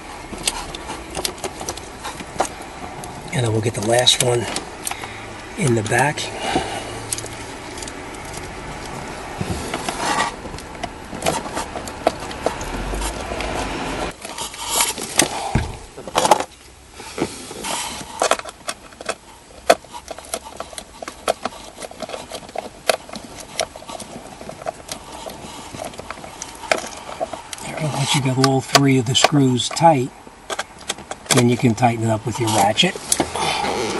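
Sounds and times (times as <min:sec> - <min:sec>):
screwdriver scraping and handling: 0:00.2 - 0:05.0, 0:05.6 - 0:15.4, 0:17.5 - 0:33.9.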